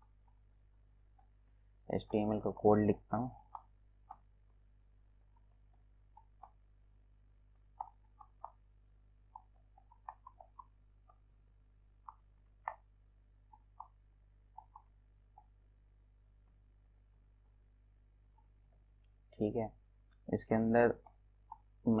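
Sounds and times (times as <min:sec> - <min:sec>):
keyboard keys typing: 0:09.3 - 0:11.3.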